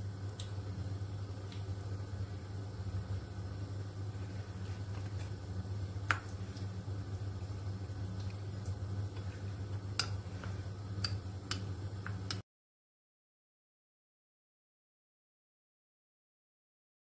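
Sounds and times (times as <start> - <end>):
deep-frying oil crackling: 0.0 - 12.4
steady low hum: 0.0 - 12.4.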